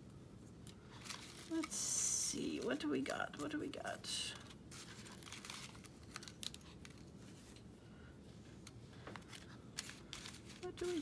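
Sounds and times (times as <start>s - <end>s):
paper scraps rustling: 0.9s - 3.7s, 4.3s - 7.6s, 9.2s - 11.0s.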